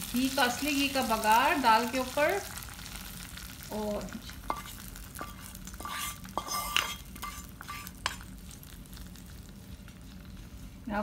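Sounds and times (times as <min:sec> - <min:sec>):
hot oil sizzling: 0:00.0 - 0:11.0
wooden spatula scraping a pan: 0:04.4 - 0:08.2.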